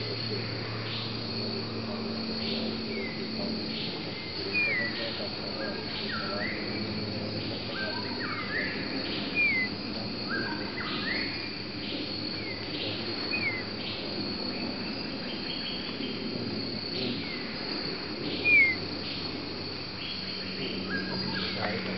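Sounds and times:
forest birds calling: 0.0 - 21.9
high insect drone: 0.0 - 21.9
bird sharp slurred calls: 2.4 - 16.2, 17.0 - 19.3.

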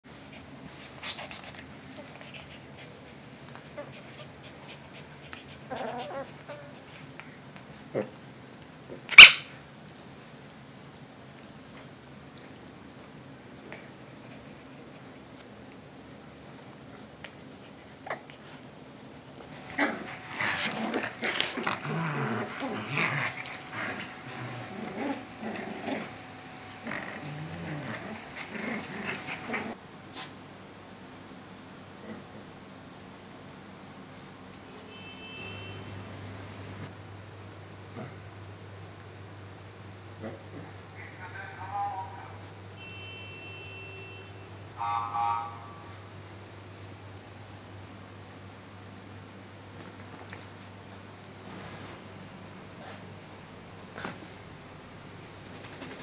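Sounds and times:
dogs growling: 1.0 - 7.0, 19.5 - 29.8, 37.9 - 38.3, 40.2 - 40.8
dog whining: 5.4 - 6.9.

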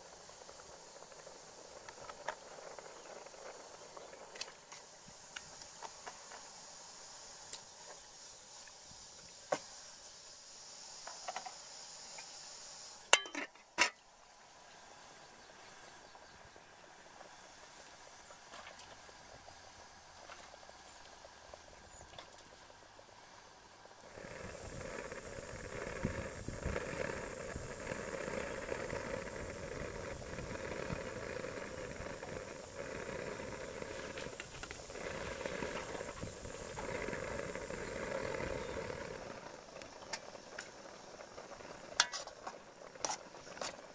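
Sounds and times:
faint high hiss: 0.0 - 43.9
soup boiling in a pot: 0.0 - 43.9
metal lid clanking on pot: 13.1 - 14.0.

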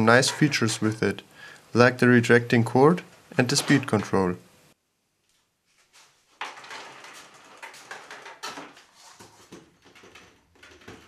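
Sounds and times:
cord scraping across concrete: 0.0 - 1.1, 3.4 - 4.2.

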